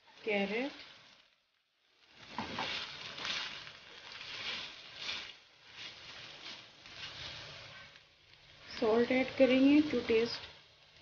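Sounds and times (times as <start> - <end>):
vegetables sizzling in oil: 0.0 - 11.0
spatula scraping through vegetables: 2.0 - 10.5.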